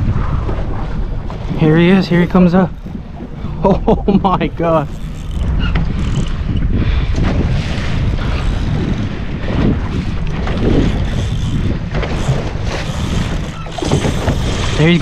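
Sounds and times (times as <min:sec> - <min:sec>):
water sloshing against boat hull: 0:00.0 - 0:15.0
wind buffeting microphone: 0:00.0 - 0:15.0.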